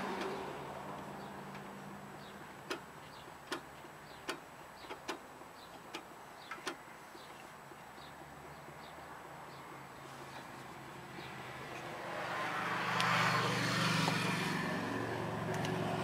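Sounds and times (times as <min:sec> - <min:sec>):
vehicle passing: 0:08.2 - 0:16.0.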